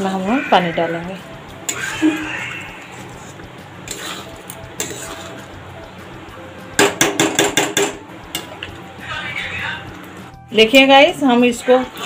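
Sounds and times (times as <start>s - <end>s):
metal spatula scraping pan: 0.2s - 5.6s.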